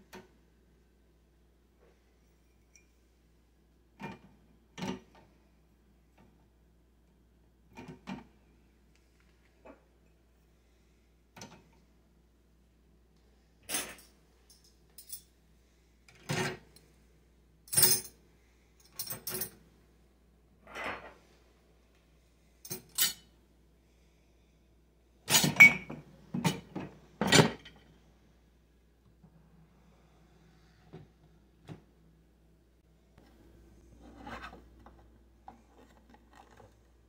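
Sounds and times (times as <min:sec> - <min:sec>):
dishes clinking in dishwasher rack: 0:25.3 - 0:27.8.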